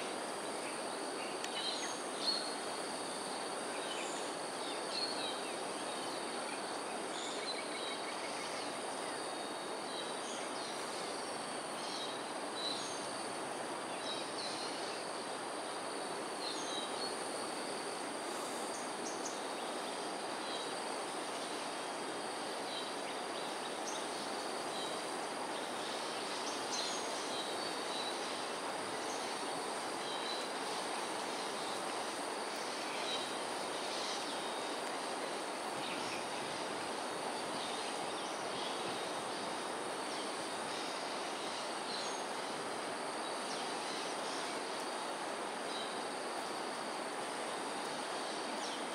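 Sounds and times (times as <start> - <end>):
high insect drone: 0.0 - 48.9
steady background hiss: 0.0 - 48.9.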